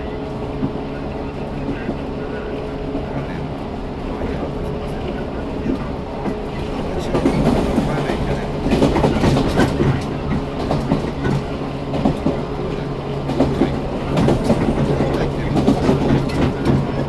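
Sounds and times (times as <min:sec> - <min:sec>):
train running hum: 0:00.0 - 0:17.0
wheels clacking over track joints: 0:05.2 - 0:17.0.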